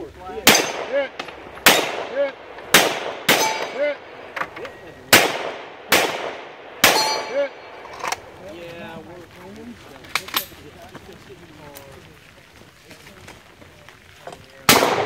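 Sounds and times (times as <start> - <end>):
steel target clanging: 0.4 - 1.9, 3.3 - 4.0, 6.8 - 7.8
handgun shots: 0.5 - 3.9, 5.1 - 7.4.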